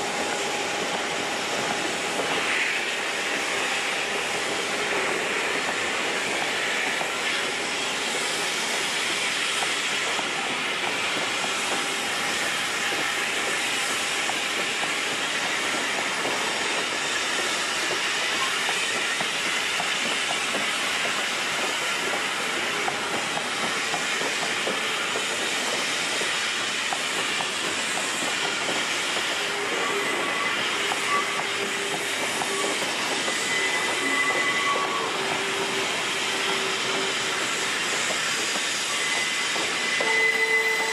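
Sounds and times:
train wheels rumbling on rail: 0:00.0 - 0:40.9.

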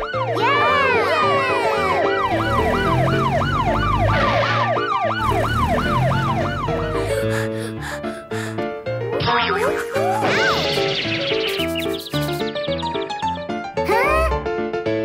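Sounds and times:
police siren yelping: 0:00.0 - 0:07.3
music: 0:00.0 - 0:15.0.

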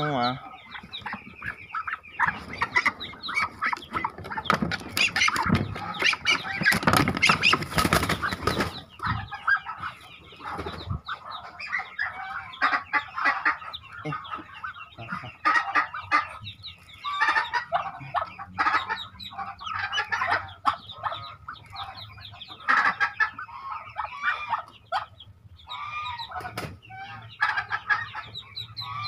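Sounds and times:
ducklings peeping: 0:00.0 - 0:29.0
wings flapping and rustling: 0:02.2 - 0:11.0, 0:26.4 - 0:26.8.

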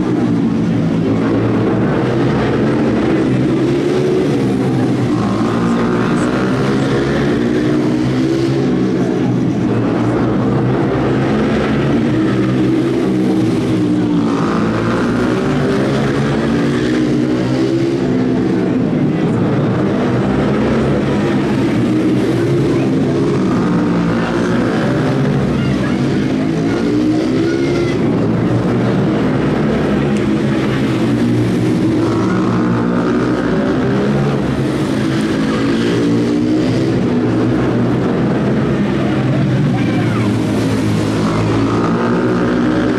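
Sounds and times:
small engines racing: 0:00.0 - 0:42.9.

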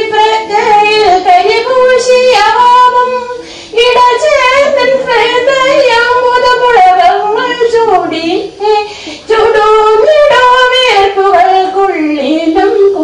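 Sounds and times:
woman singing unaccompanied: 0:00.0 - 0:13.0.

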